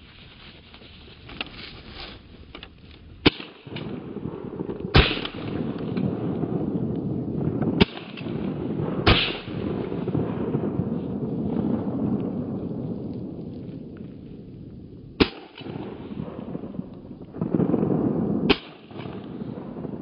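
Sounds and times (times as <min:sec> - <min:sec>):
shotgun shots: 0:03.2 - 0:06.6, 0:07.7 - 0:10.1, 0:15.2 - 0:16.7, 0:18.4 - 0:19.5.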